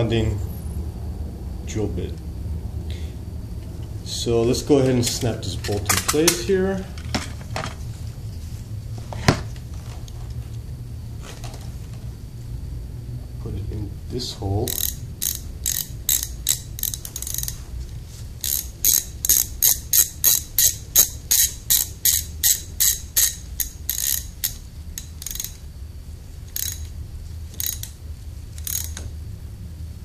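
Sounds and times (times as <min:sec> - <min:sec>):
socket ratchet clicking: 0:14.7 - 0:17.6, 0:18.4 - 0:25.6, 0:26.5 - 0:29.1.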